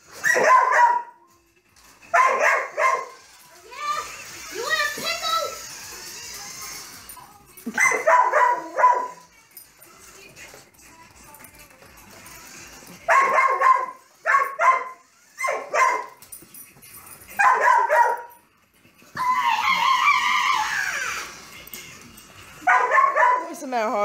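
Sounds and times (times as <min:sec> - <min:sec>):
dog barking and yipping: 0:00.1 - 0:01.2, 0:02.1 - 0:03.2, 0:07.7 - 0:09.3, 0:13.1 - 0:16.2, 0:17.3 - 0:18.4, 0:22.6 - 0:23.7.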